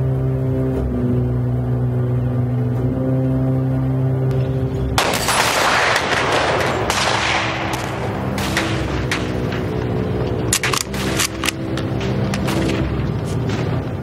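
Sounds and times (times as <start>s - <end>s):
film soundtrack music over speakers: 0.0s - 14.0s
gunshot cracks: 5.0s - 9.4s.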